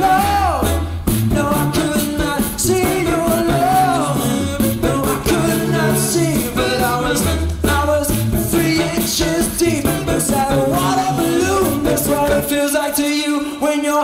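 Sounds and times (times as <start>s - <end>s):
pulsing bass line: 0.0s - 12.5s
steady beat: 0.0s - 12.6s
man singing soul song: 0.0s - 14.0s.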